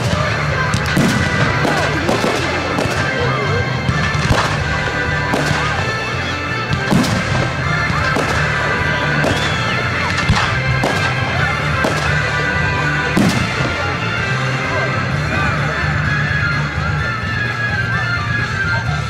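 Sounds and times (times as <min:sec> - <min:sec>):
fireworks bangs: 0:00.0 - 0:14.4
loud music with deep bass: 0:00.0 - 0:19.0.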